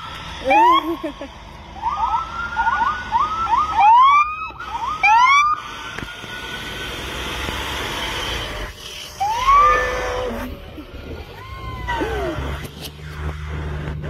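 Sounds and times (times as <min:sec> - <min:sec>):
fire engine siren whoops: 0:00.0 - 0:01.1, 0:01.8 - 0:07.0, 0:09.2 - 0:10.6, 0:11.2 - 0:12.7
truck driving past: 0:00.0 - 0:14.0.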